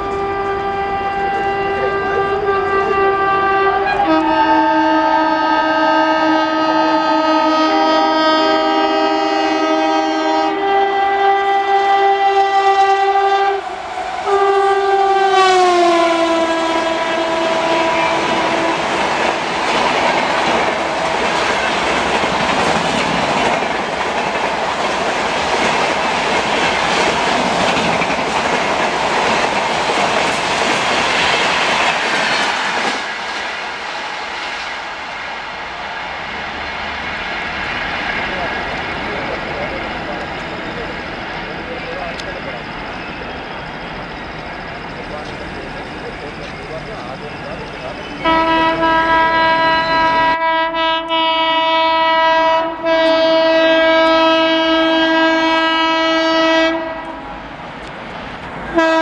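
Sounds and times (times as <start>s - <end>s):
train horn chord: 0.0s - 19.0s, 48.2s - 57.4s, 58.7s - 59.0s
train wheels clattering on rails: 11.3s - 35.2s, 36.3s - 51.3s.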